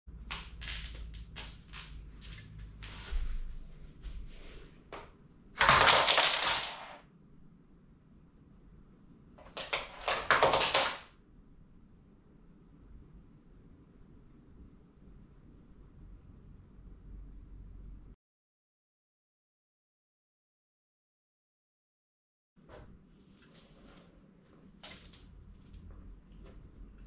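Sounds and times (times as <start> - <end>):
plastic bricks clicking and clattering: 5.6 - 7.0, 9.4 - 11.1.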